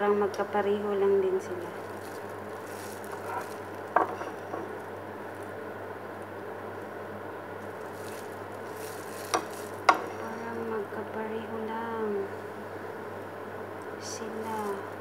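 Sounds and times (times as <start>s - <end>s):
batter sizzling: 1.4s - 10.4s.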